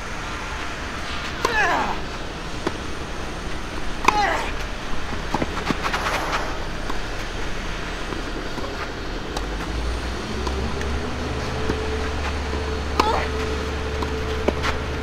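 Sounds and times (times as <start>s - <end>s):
road traffic rumble: 0.0s - 15.0s
vehicle engine drone: 0.0s - 15.0s
tennis racket hitting ball: 1.3s - 2.0s, 2.6s - 7.4s, 11.4s - 14.8s.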